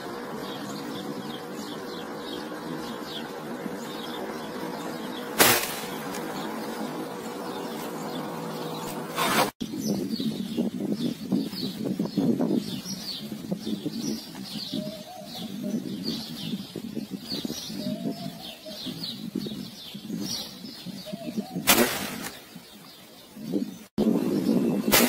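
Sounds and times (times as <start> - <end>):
doves cooing: 0.0 - 9.5, 13.0 - 23.8
small birds chirping: 0.0 - 25.0
sharp loud burst: 5.4 - 6.0, 21.6 - 22.4.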